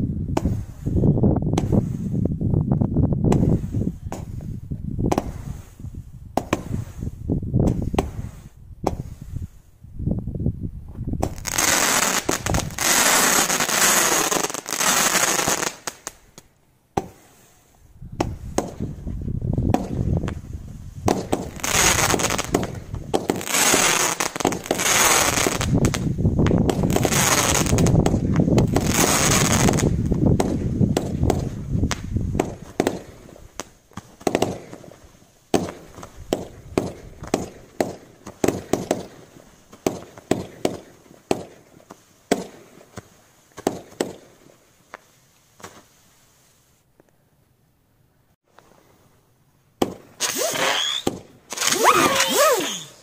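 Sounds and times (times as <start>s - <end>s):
firework pops and crackles: 0.3s - 0.9s, 1.5s - 2.2s, 3.2s - 9.4s, 11.0s - 17.5s, 18.1s - 46.0s, 49.8s - 53.0s
fireworks shells firing: 21.0s - 44.4s, 49.8s - 53.0s.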